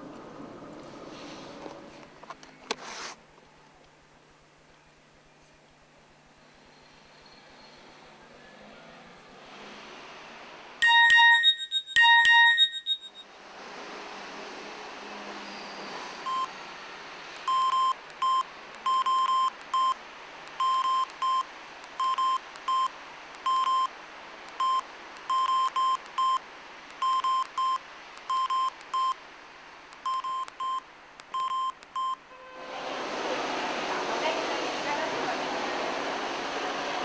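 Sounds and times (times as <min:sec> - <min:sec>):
outdoor background noise: 0:00.0 - 0:37.0
phone keypad beeps: 0:10.8 - 0:13.2, 0:17.5 - 0:20.0, 0:20.6 - 0:21.4, 0:22.0 - 0:23.9, 0:24.6 - 0:26.4, 0:27.0 - 0:29.2, 0:30.0 - 0:32.2.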